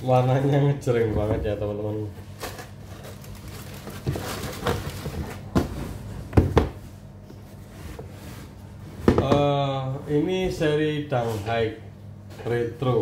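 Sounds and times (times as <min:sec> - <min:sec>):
cardboard rustling: 0:02.4 - 0:06.1
knocks on cardboard box: 0:05.5 - 0:06.8.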